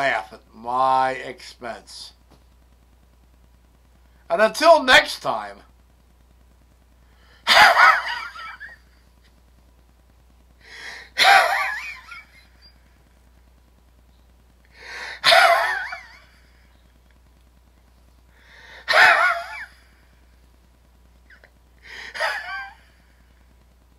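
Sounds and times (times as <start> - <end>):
man laughing hard: 7.5 - 8.8, 11.1 - 12.7, 15.2 - 16.4, 18.8 - 19.8, 21.3 - 23.0
sharp intake of breath: 10.6 - 11.2, 14.7 - 15.2, 18.4 - 18.9, 21.8 - 22.2.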